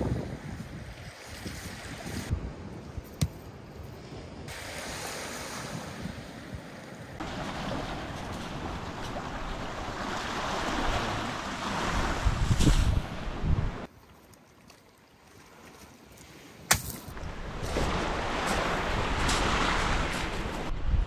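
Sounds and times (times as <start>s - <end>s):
wind: 0.0s - 21.0s
waves washing onto pebbles: 7.2s - 13.3s, 17.1s - 20.7s.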